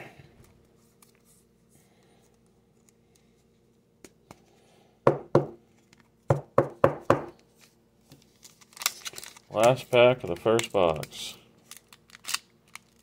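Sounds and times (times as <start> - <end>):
cards knocking on tabletop: 5.1 - 5.6, 6.3 - 7.4.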